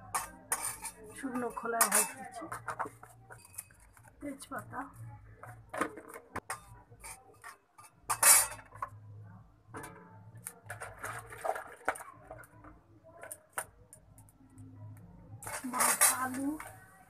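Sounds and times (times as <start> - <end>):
metal spatula scraping metal pan: 0.0 - 4.1, 6.4 - 8.9, 15.4 - 16.7.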